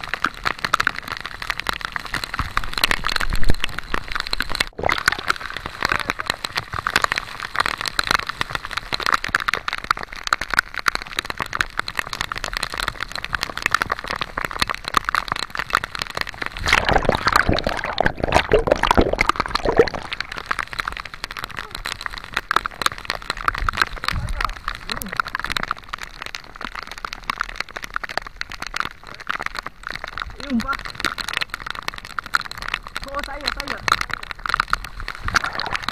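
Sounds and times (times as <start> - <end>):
heavy rain on sea surface: 0.0 - 35.9
deep rush of water splashing: 3.4 - 6.8, 16.4 - 20.8, 35.0 - 35.9.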